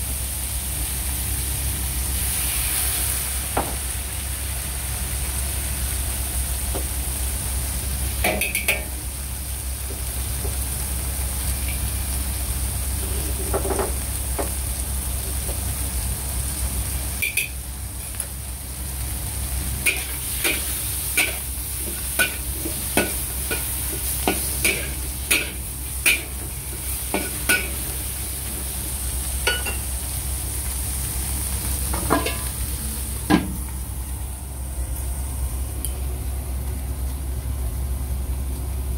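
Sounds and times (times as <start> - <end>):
shrimp sizzling in a wok: 0.0 - 38.9.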